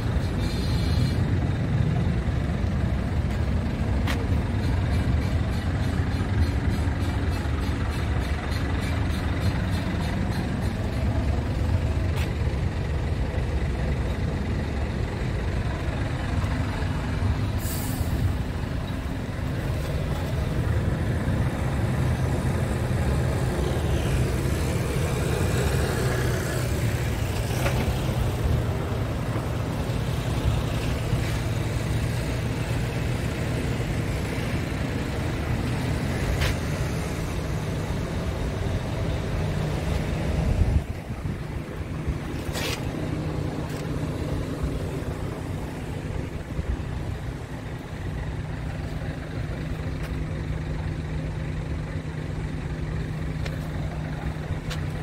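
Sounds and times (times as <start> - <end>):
diesel engine idling: 0.0 - 55.0
compressed air hiss: 17.5 - 18.5.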